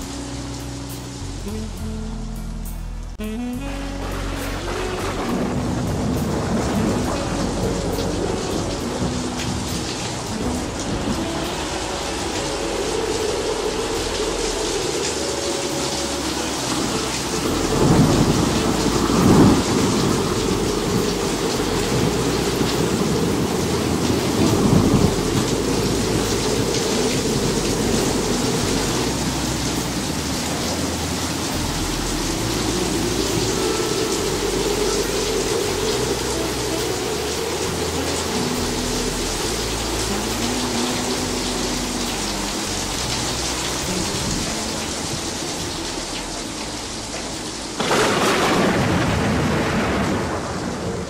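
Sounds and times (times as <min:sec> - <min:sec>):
steady rain: 0:00.0 - 0:51.0
rolling thunder: 0:04.6 - 0:15.0, 0:16.7 - 0:31.7, 0:47.8 - 0:51.0.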